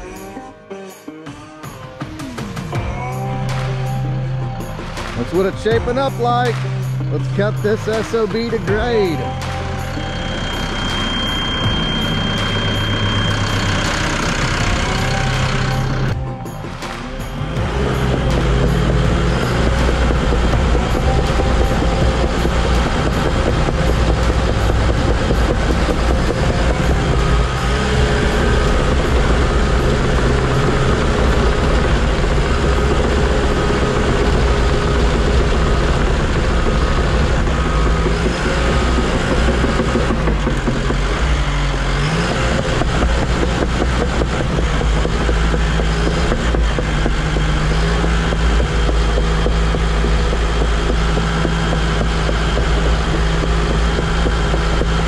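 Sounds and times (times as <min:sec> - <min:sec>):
diesel engine rumbling under load: 0:02.8 - 0:55.0
dozer tracks clattering: 0:17.5 - 0:55.0.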